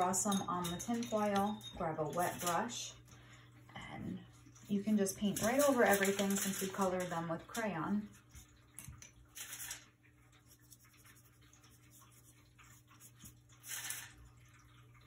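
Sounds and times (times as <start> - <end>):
crumpled tin foil rustling: 5.2 - 7.6, 9.3 - 9.9, 13.5 - 14.2.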